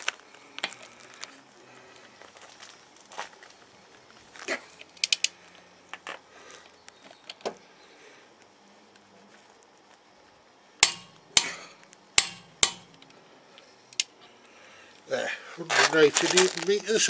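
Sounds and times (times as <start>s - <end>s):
torque wrench clicking: 5.0s - 5.3s, 10.8s - 11.6s, 12.2s - 13.1s, 13.9s - 14.1s.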